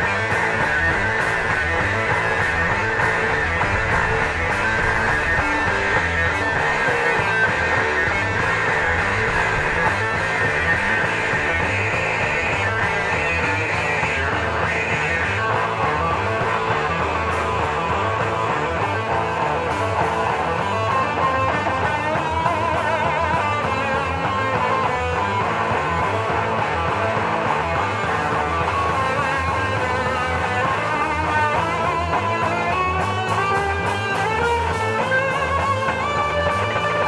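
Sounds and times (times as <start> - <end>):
bass guitar: 0.0 - 37.0
drum kit: 0.0 - 37.0
electric guitars: 0.0 - 37.0.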